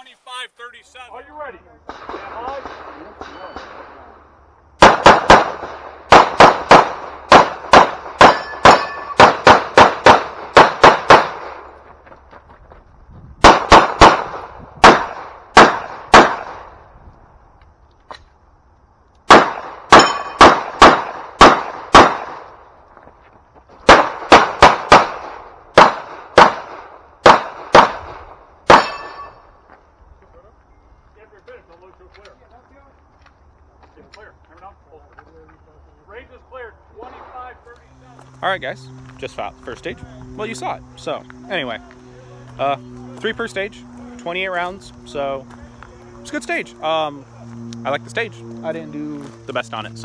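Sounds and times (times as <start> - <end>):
pistol shots: 4.8 - 11.7, 13.4 - 16.8, 19.2 - 22.6, 23.8 - 29.4.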